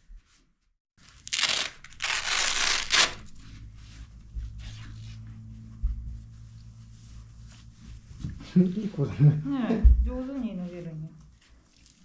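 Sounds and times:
fabric rustling and scraping: 0:00.0 - 0:09.1
low steady hum: 0:02.0 - 0:11.4
soft thumps: 0:09.7 - 0:10.5.

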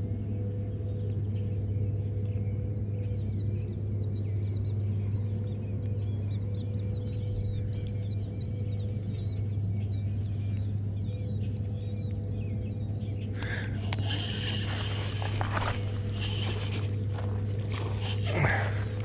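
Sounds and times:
small birds chirping: 0:00.0 - 0:19.0
footsteps on loose stones: 0:13.4 - 0:19.0.

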